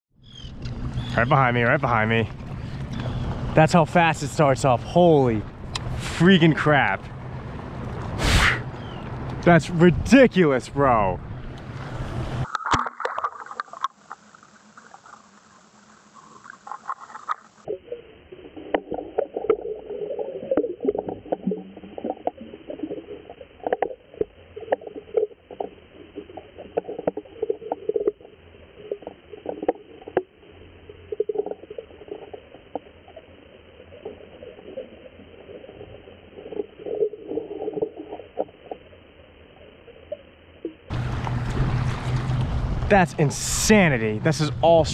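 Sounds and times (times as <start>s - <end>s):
underwater rumbling wash of water: 10.8s - 38.9s, 40.8s - 44.9s.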